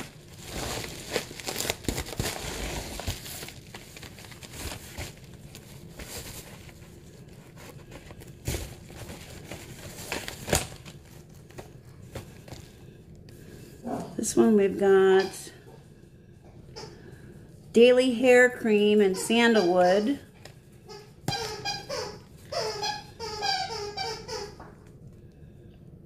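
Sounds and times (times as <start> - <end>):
plastic mailer crinkling: 0.0 - 12.8.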